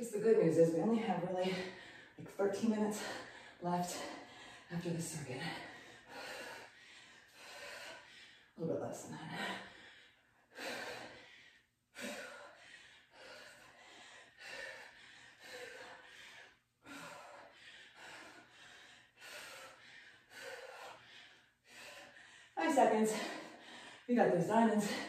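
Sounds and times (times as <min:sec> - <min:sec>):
woman breathing hard: 0:01.4 - 0:02.3, 0:02.9 - 0:04.7, 0:05.4 - 0:08.6, 0:09.3 - 0:24.1.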